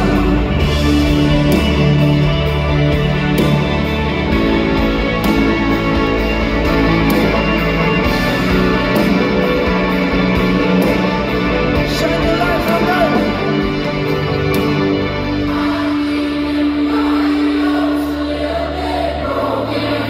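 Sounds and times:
steady drum beat: 0:00.0 - 0:15.8
electric guitar: 0:00.0 - 0:19.9.

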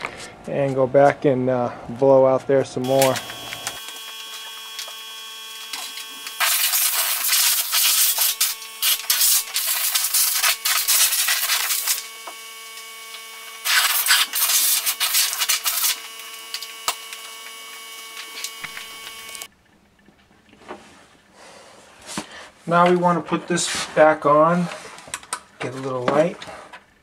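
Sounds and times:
steady hum: 0:00.0 - 0:19.6
compressed air blasting from hose: 0:02.9 - 0:12.9, 0:13.6 - 0:17.3.

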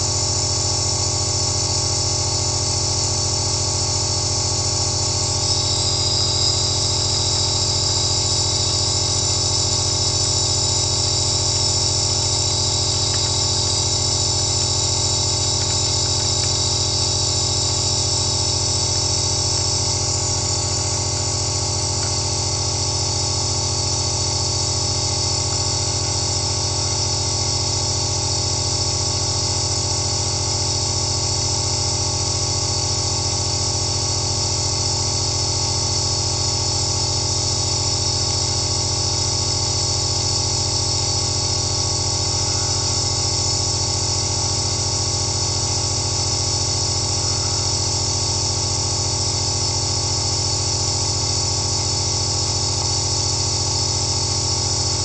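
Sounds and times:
nebulizer motor drone: 0:00.0 - 0:55.0
hiss of air and mist: 0:05.4 - 0:22.5.

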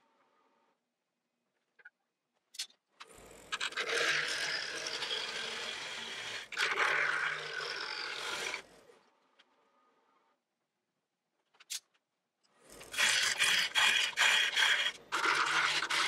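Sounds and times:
gouge cutting wood on lathe: 0:03.1 - 0:08.8, 0:12.7 - 0:16.0
lathe motor hum: 0:03.5 - 0:08.8, 0:12.8 - 0:16.0.

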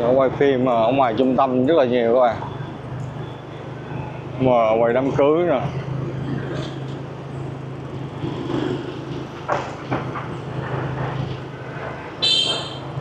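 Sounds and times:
motorbike engine hum: 0:00.0 - 0:13.0
road noise: 0:00.0 - 0:13.0
high-pitched vehicle horn beep: 0:12.2 - 0:13.0.

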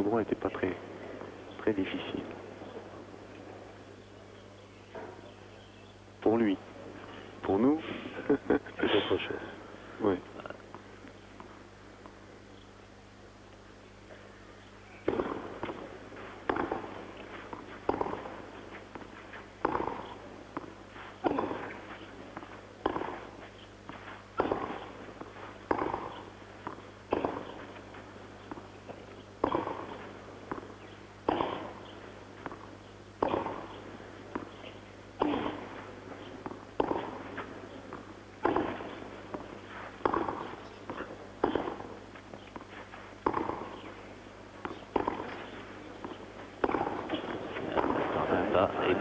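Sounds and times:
tennis balls struck by rackets: 0:14.0 - 0:49.0
crowd noise: 0:31.6 - 0:49.0.

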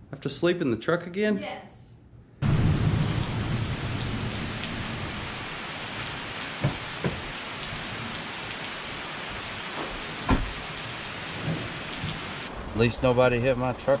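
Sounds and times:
low rumble: 0:02.4 - 0:05.6
rain on pavement: 0:02.4 - 0:14.0
truck door opening knocks: 0:06.6 - 0:07.4, 0:09.8 - 0:10.8.

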